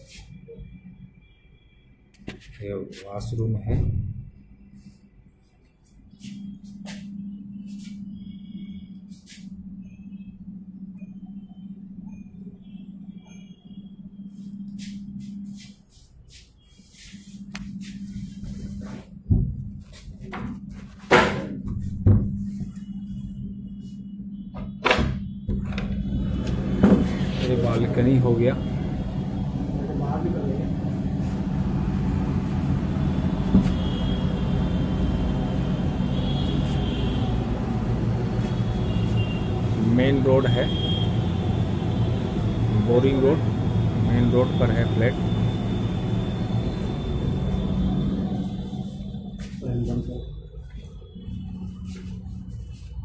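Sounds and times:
steady low hum: 0.0 - 53.0
road traffic rumble: 25.6 - 53.0.

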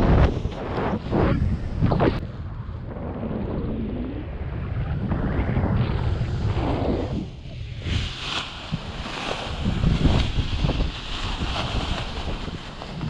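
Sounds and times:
wind rushing over microphone: 0.0 - 13.0
fabric fluttering crackles: 7.8 - 13.0.

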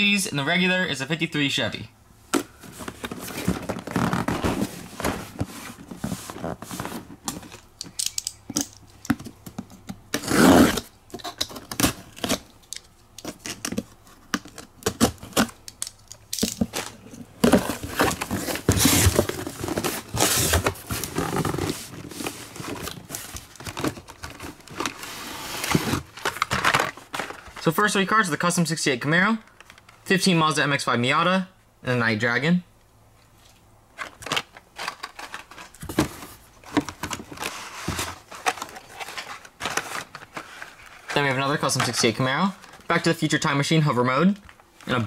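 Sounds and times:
cardboard scraping and rustling: 2.4 - 7.7, 16.6 - 27.7, 34.0 - 43.0
knife slitting packing tape: 10.1 - 13.8.

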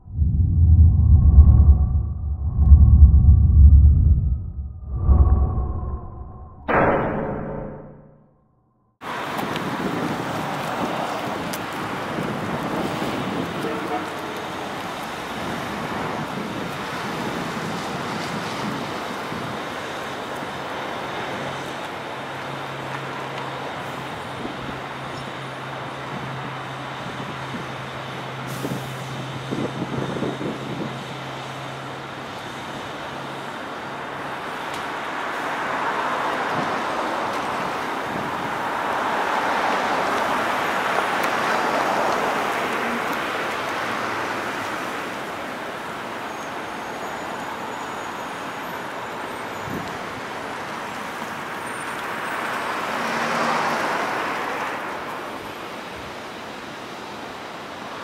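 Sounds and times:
cars driving past: 51.7 - 55.1.

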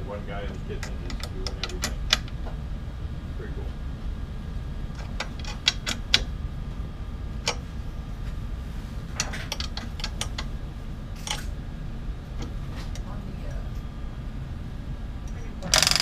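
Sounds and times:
steady low hum: 0.0 - 16.0
metal tools clicking on metal: 0.8 - 2.3.

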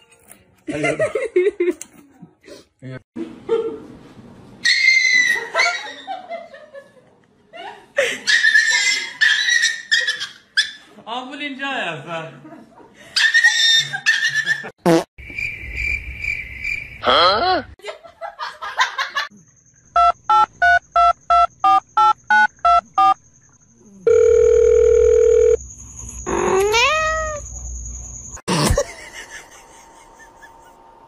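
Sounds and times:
dial tone: 24.0 - 25.6
high-pitched animal cries: 26.3 - 27.4.

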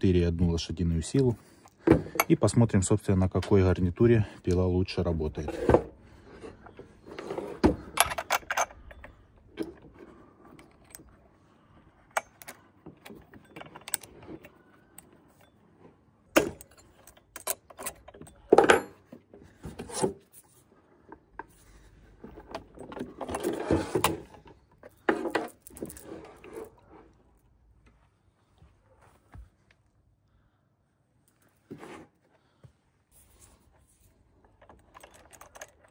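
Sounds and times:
metal parts rattling: 6.6 - 11.2, 12.1 - 15.5, 16.4 - 19.1, 22.2 - 26.8, 34.0 - 35.9
metallic clicks and clinks: 7.9 - 11.2, 12.1 - 15.6, 16.3 - 19.1, 34.4 - 35.9.

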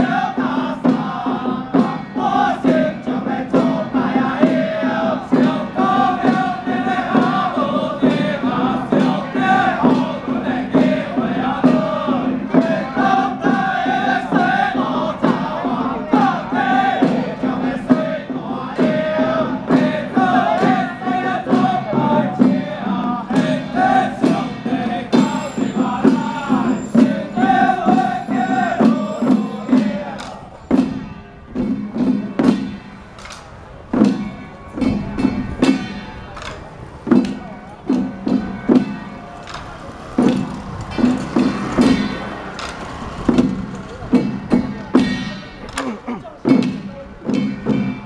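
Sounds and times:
men chanting in unison: 0.0 - 31.0
hand drums: 0.0 - 48.0.

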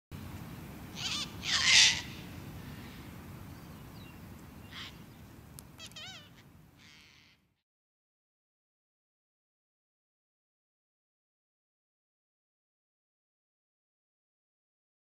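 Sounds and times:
bird squawks and warbling: 1.0 - 2.2, 4.7 - 5.0, 5.8 - 7.5
cockatoo screeching: 1.0 - 2.2, 5.8 - 7.4.

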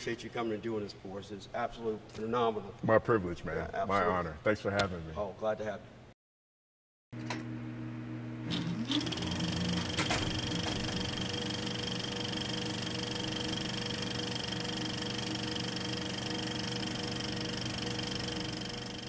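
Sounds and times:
film projector whirr and clatter: 8.5 - 19.0.

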